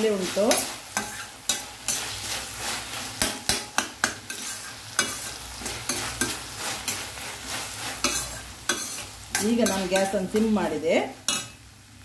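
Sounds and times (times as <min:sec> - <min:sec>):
vegetables sizzling in a pan: 0:00.0 - 0:12.0
utensil scraping and tapping steel: 0:03.2 - 0:06.4, 0:08.0 - 0:10.2.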